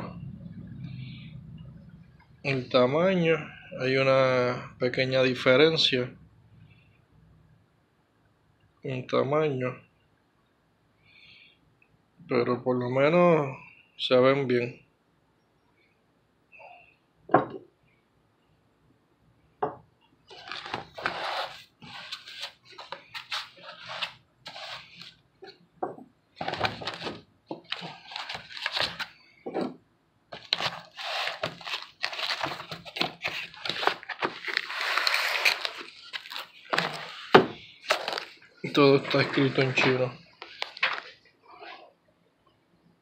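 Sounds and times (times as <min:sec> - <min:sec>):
rustling foam and cardboard: 0:20.3 - 0:25.6, 0:26.4 - 0:29.2, 0:30.3 - 0:40.2.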